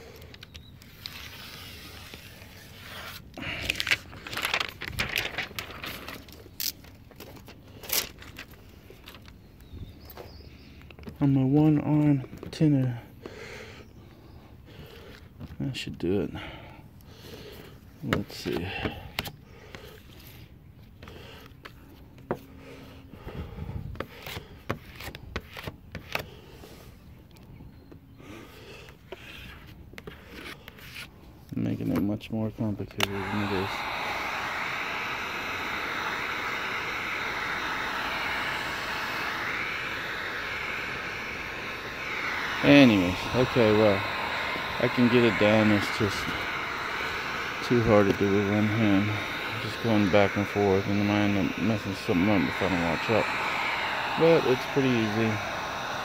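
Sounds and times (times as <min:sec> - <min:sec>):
plastic film crinkling: 0:00.4 - 0:09.3.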